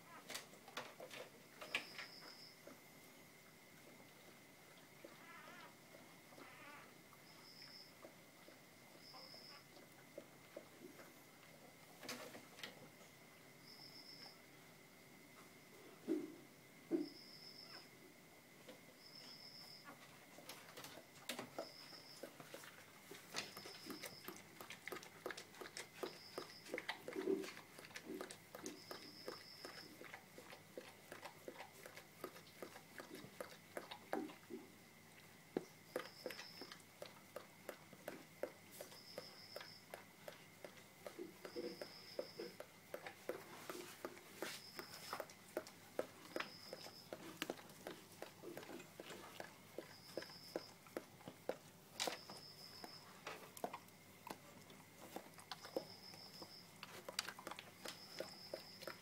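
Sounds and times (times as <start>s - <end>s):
puppies suckling wet clicks: 20.4s - 59.0s.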